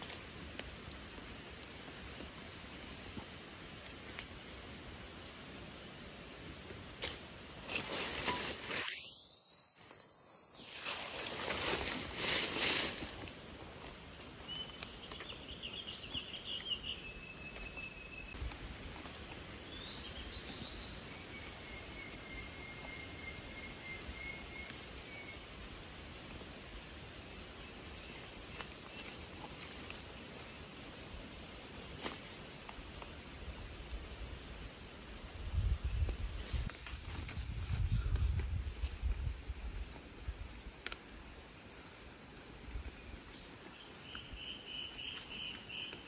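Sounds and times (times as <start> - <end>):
rustling in leaf litter: 0.0 - 22.6, 24.5 - 46.0
high steady insect tone: 8.5 - 12.0
faint bird chirps: 14.5 - 18.4, 19.6 - 25.5, 42.7 - 46.0.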